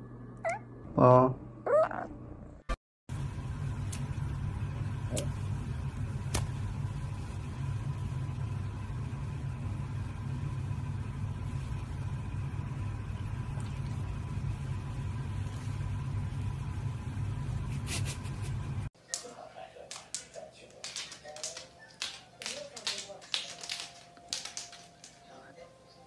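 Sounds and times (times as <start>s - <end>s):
low machine hum: 0.0s - 18.9s.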